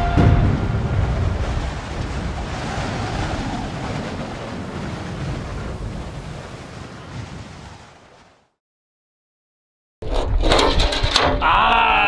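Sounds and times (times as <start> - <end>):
wind buffeting microphone: 0.0 - 8.3
breaking waves: 0.0 - 8.6.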